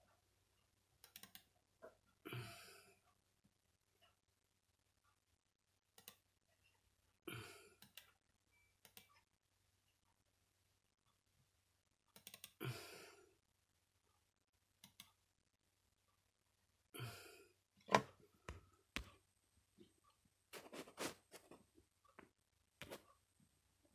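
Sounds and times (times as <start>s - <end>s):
computer mouse clicks: 1.0s - 1.5s, 6.0s - 6.2s, 7.8s - 8.2s, 8.8s - 9.3s, 12.1s - 12.6s, 14.8s - 15.2s.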